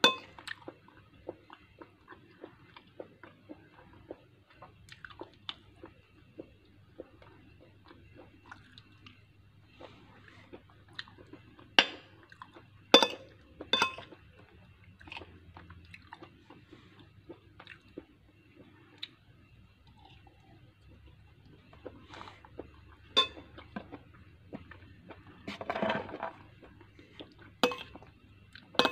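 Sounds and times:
chewing cooked vegetables: 0.0s - 28.9s
metal spoon clinking glass bowl: 13.8s - 14.0s, 23.1s - 23.4s, 27.6s - 28.0s.

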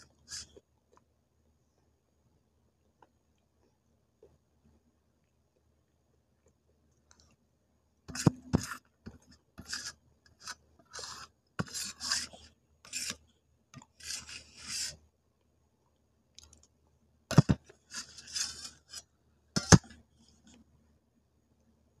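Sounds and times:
spoon scraping a steel bowl: 8.1s - 13.2s, 13.8s - 15.0s, 17.3s - 19.0s, 19.6s - 19.9s.

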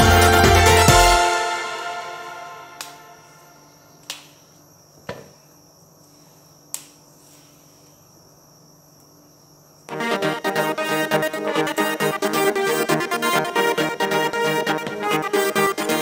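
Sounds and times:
background music: 0.0s - 3.6s, 9.9s - 16.0s
green beans snapping: 4.0s - 4.4s, 6.7s - 7.0s.

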